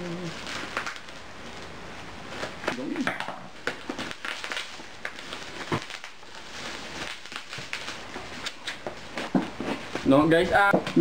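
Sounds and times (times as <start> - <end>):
bubble wrap crinkling: 0.0 - 11.0
small crackles and clicks: 0.3 - 1.7, 2.4 - 9.3.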